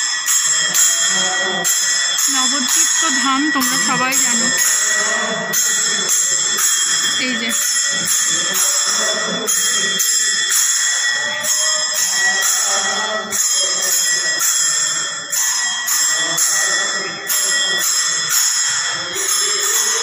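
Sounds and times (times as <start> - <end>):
hand cymbals ringing: 0.0 - 20.0
voices singing: 0.0 - 20.0.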